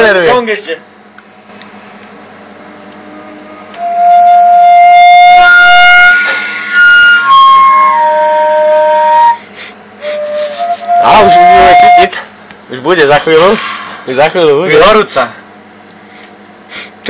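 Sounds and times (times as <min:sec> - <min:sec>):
microwave oven humming: 0:00.0 - 0:17.0
wind instrument playing slow tune: 0:02.5 - 0:12.2.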